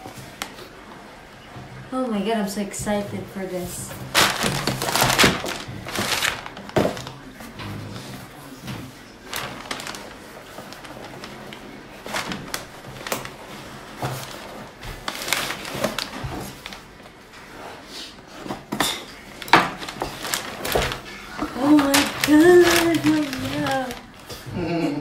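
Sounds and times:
paper rustling: 0:04.0 - 0:07.6, 0:08.8 - 0:18.7, 0:19.3 - 0:24.5.

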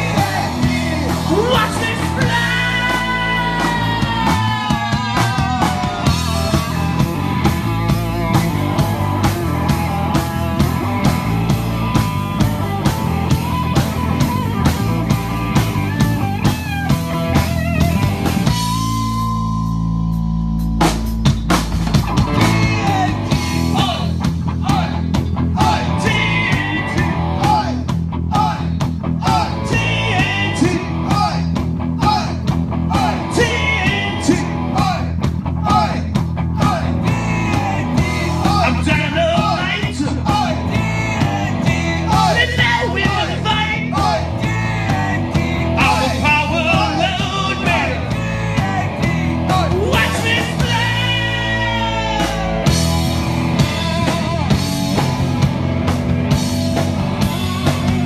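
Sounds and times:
person singing: 0:00.0 - 0:07.1, 0:36.6 - 0:52.7
drum kit: 0:00.0 - 0:58.0
rock band playing: 0:00.0 - 0:58.0.

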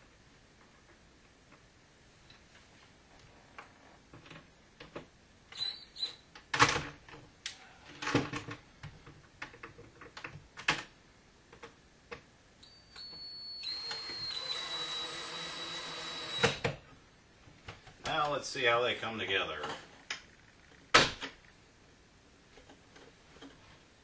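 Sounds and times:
cordless drill whirring: 0:13.0 - 0:16.7.

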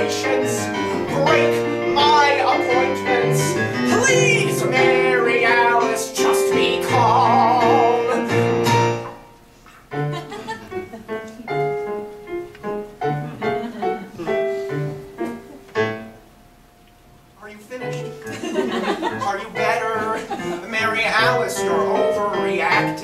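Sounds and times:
man singing: 0:00.0 - 0:08.8, 0:19.3 - 0:23.0
electric keyboard chords: 0:00.0 - 0:16.3.

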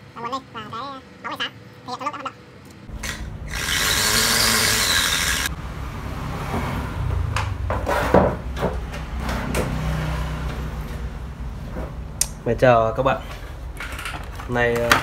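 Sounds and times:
scraping and knocking on workbench: 0:07.6 - 0:09.9.

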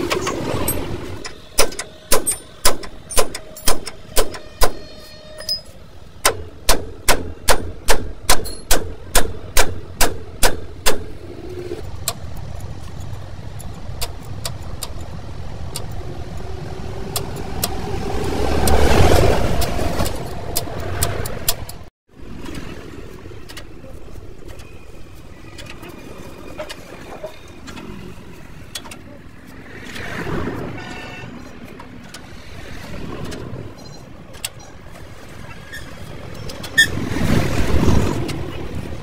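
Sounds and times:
low rumble: 0:11.0 - 0:21.5.

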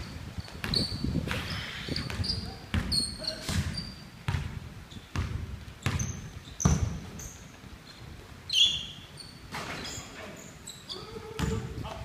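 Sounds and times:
sneakers squeaking: 0:00.0 - 0:12.0
basketball bouncing on wooden floor: 0:00.5 - 0:01.0, 0:02.0 - 0:07.2, 0:11.4 - 0:11.8.

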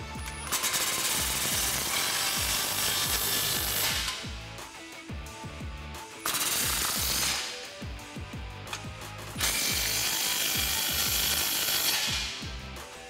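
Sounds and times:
impact wrench hammering: 0:00.0 - 0:04.4, 0:06.2 - 0:07.6, 0:08.7 - 0:12.6.

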